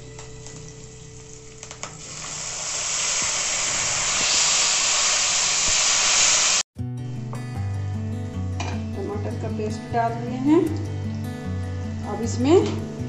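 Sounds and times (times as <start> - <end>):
background music: 0.0 - 2.1, 6.8 - 13.0
paste sizzling in hot oil: 0.8 - 6.6.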